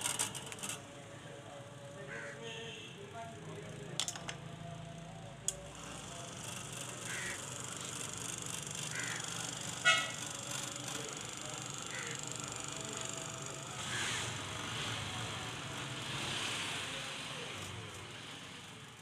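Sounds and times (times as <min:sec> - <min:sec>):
click: 0:05.4 - 0:05.6
electric butter churn humming: 0:05.6 - 0:14.7.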